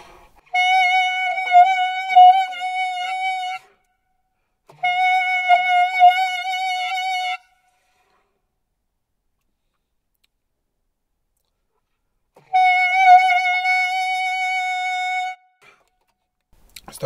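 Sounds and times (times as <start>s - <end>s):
saxophone holding high note: 0.5s - 3.8s, 4.7s - 7.6s, 12.4s - 15.8s.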